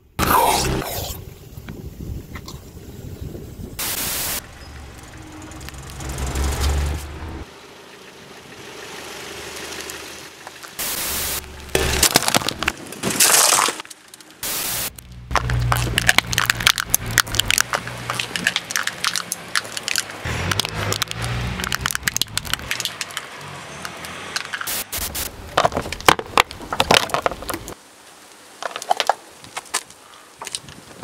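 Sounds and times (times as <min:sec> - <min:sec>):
low engine rumble: 0:04.4 - 0:12.9
tyre crushing small objects: 0:10.5 - 0:24.8, 0:25.4 - 0:27.8, 0:28.6 - 0:30.8.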